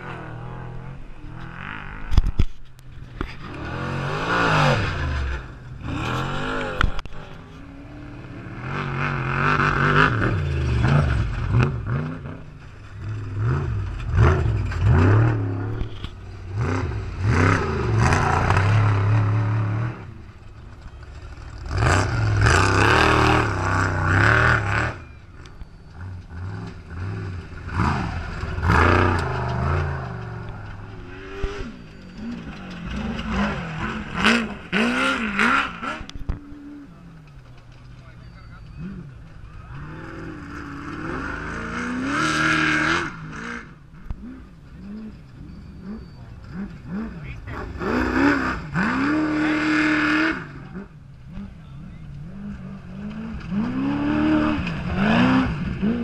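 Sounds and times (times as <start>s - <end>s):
race truck engines revving past: 0.0s - 56.0s
gravel clattering: 4.8s - 41.5s.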